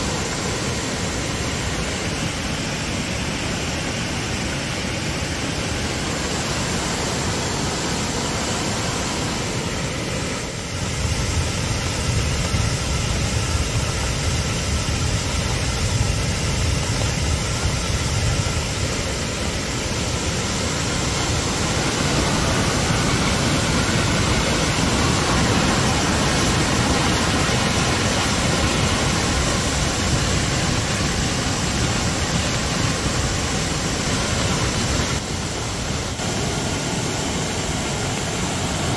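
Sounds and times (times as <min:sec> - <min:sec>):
river rushing in flood: 0:00.0 - 0:38.9.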